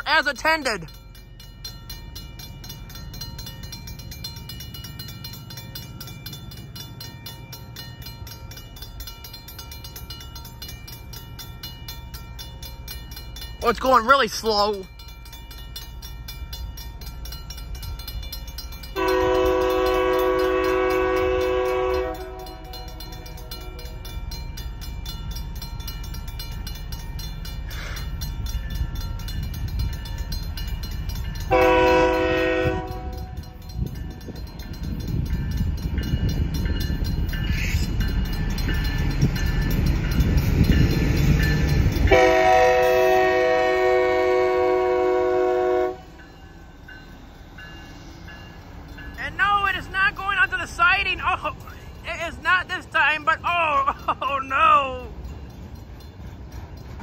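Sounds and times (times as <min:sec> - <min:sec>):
crossing signal bell ringing: 0:00.0 - 0:57.0
locomotive engine and wheel rumble: 0:00.0 - 0:57.0
locomotive air horn blasts: 0:19.0 - 0:23.0, 0:31.5 - 0:33.6, 0:42.1 - 0:46.1.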